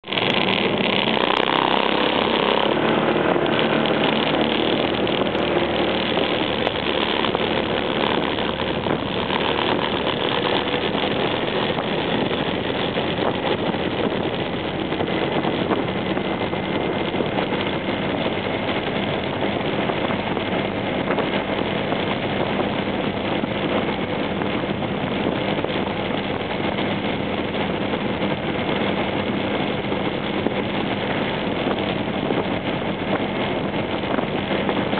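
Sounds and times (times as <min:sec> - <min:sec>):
scooter engine drone: 0:00.0 - 0:34.9
wind and road noise: 0:00.0 - 0:34.9.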